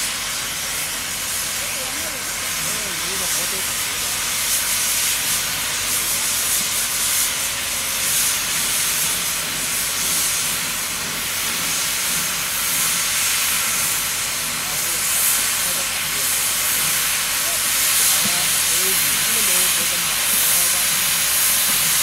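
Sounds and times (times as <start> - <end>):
steam locomotive exhaust hissing: 0.0 - 22.0.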